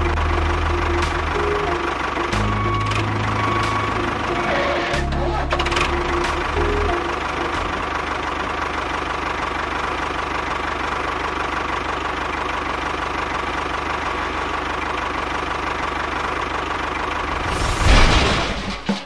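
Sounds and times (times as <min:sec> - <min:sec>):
tractor engine knocking idle: 0:00.0 - 0:04.4, 0:05.0 - 0:17.4.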